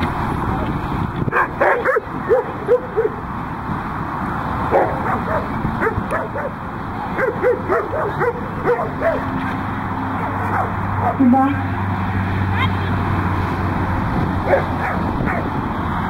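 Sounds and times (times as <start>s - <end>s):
dog barking: 1.3s - 3.2s, 4.7s - 6.6s, 7.2s - 9.4s, 10.3s - 11.2s, 14.5s - 15.5s.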